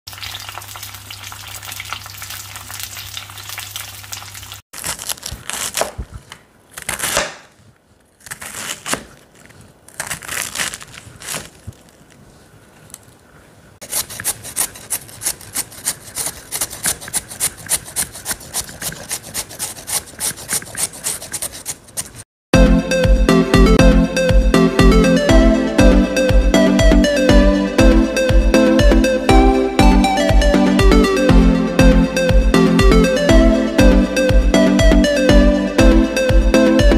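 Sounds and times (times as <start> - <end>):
spring rolls sizzling in oil: 0.1 - 4.6
knife slicing cabbage on board: 4.8 - 11.7, 13.8 - 22.2
carrot rubbed on hand grater: 13.8 - 22.2.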